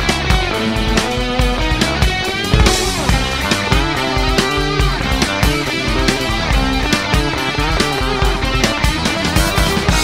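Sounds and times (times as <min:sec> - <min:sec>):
progressive rock instrumental: 0:00.0 - 0:10.0
busy drum hits: 0:02.5 - 0:04.8.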